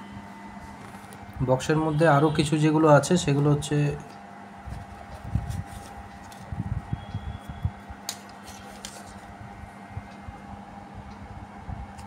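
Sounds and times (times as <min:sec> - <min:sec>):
faint steady hum: 0:00.0 - 0:12.0
paper rustling: 0:04.6 - 0:06.6, 0:08.1 - 0:09.3.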